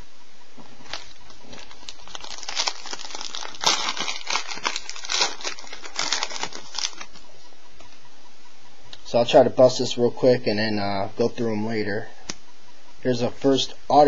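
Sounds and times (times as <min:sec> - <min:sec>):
card pack wrapper crinkling: 0:00.8 - 0:07.2.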